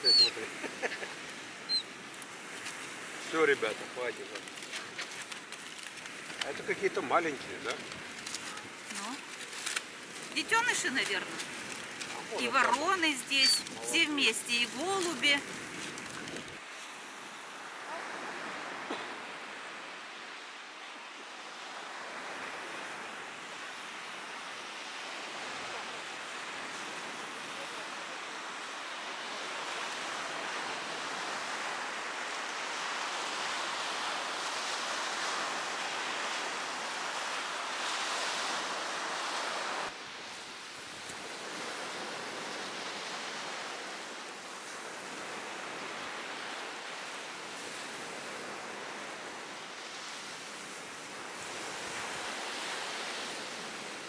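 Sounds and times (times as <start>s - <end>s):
surf washing onto sandy beach: 0.0s - 54.0s.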